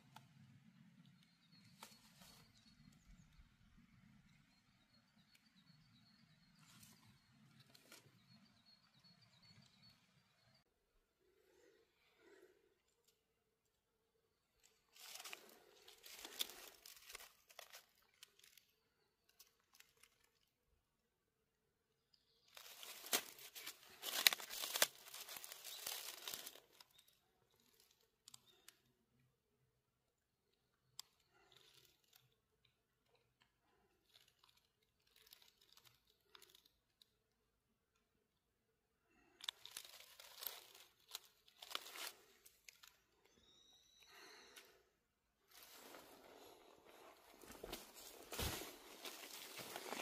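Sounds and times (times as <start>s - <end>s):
dry leaves rustling and crackling: 14.9s - 18.6s, 22.5s - 26.9s, 39.4s - 42.2s, 47.6s - 50.0s.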